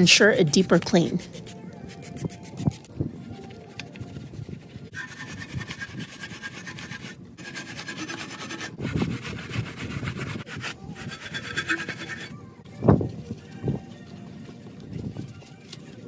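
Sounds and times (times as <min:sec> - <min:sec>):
brushes scrubbing a wheel: 0:00.7 - 0:12.4.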